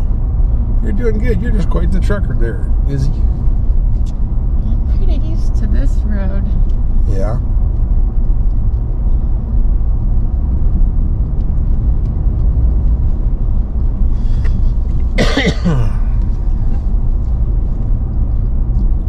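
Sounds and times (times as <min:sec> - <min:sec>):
truck engine low rumble: 0:00.0 - 0:19.0
person clearing throat: 0:15.2 - 0:16.1.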